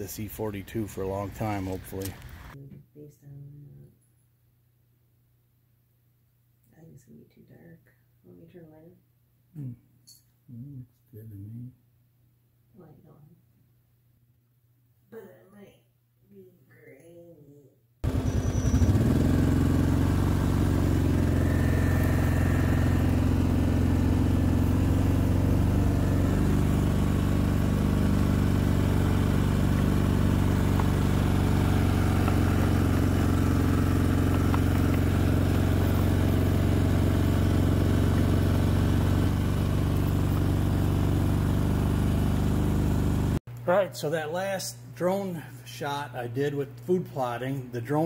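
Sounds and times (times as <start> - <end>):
small vehicle engine running: 0.0 - 2.6, 18.0 - 43.4.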